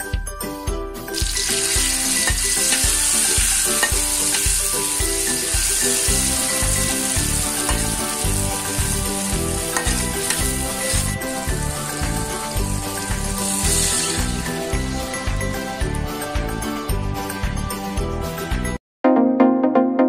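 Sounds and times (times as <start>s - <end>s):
spice paste sizzling in oil: 1.1s - 15.4s
metal spatula clicking on pan: 1.3s - 4.6s, 7.6s - 7.9s, 9.7s - 10.5s.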